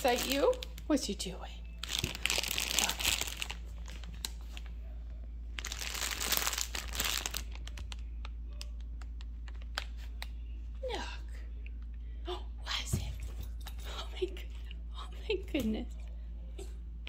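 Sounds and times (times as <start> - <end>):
treat bag crinkling: 0.0 - 1.2, 1.8 - 4.8, 5.5 - 10.3.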